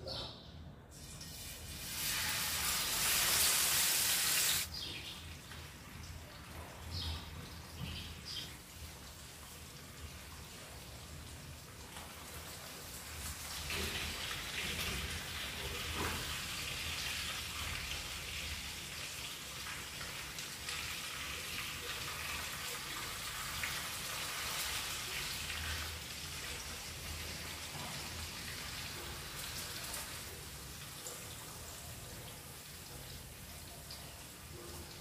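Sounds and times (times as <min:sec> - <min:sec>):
hot oil sizzling in a frying pan: 0:01.3 - 0:04.7, 0:13.0 - 0:31.0.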